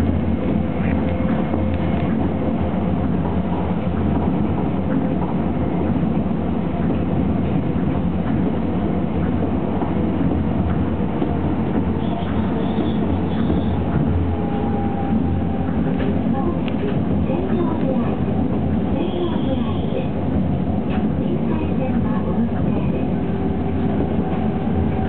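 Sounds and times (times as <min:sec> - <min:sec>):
constant hum: 0:00.0 - 0:25.0
monorail car rumbling: 0:00.0 - 0:25.0.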